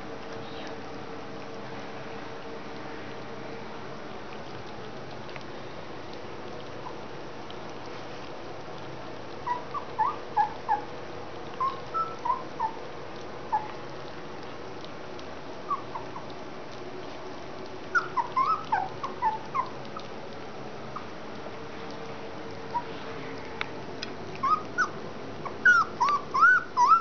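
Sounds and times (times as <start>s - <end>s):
puppies squeaking and whimpering: 9.4s - 10.9s, 11.5s - 12.8s, 13.5s - 13.8s, 15.7s - 16.3s, 17.9s - 20.1s, 24.4s - 27.0s.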